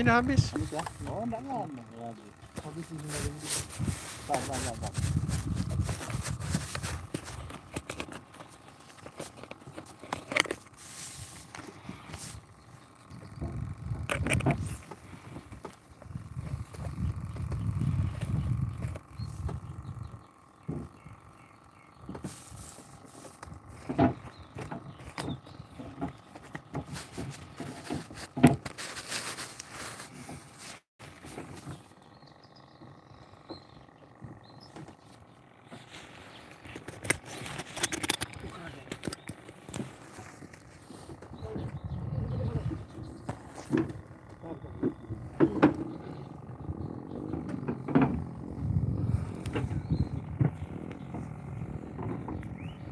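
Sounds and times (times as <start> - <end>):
gear knocking on kayak: 41.1 - 52.9.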